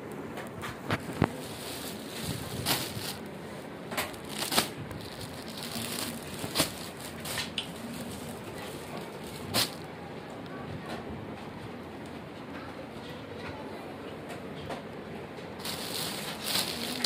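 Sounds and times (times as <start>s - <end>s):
steady background noise: 0.0s - 17.0s
plastic bags crinkling: 0.8s - 9.9s, 15.6s - 17.0s.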